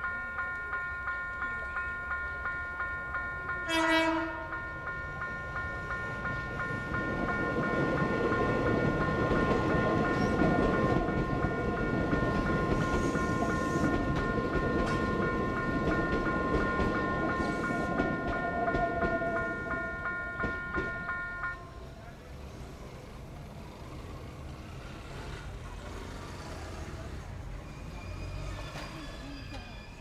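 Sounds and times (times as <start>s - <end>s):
level crossing bell ringing: 0.0s - 21.8s
train passing: 0.0s - 30.0s.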